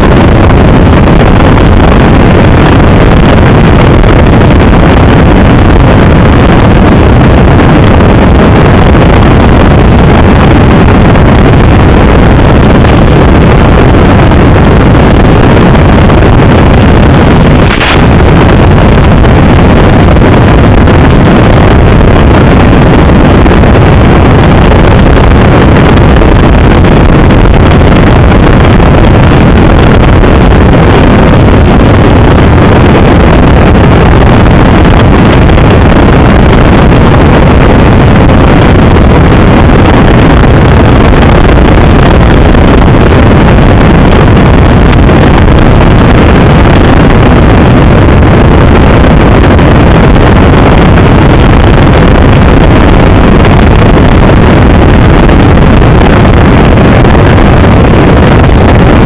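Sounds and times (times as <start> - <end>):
wind rushing over microphone: 0.0 - 59.0.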